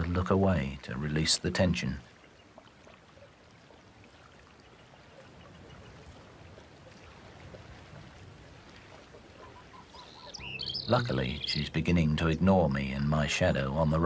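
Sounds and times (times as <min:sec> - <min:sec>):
outdoor ambient hiss: 0:09.7 - 0:14.0.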